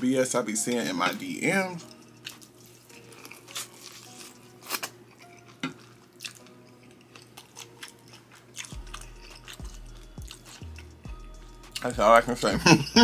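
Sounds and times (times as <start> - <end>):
chewing corn on the cob: 1.8 - 11.0.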